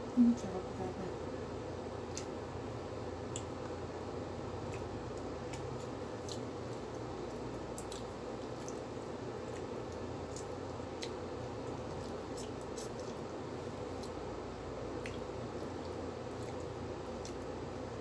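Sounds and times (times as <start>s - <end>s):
steady background hum: 0.0s - 18.0s
wet clicks and smacks: 2.0s - 2.4s, 3.2s - 3.8s, 4.6s - 13.3s, 13.9s - 14.2s, 14.9s - 17.6s
person chewing: 4.6s - 14.3s, 14.9s - 18.0s.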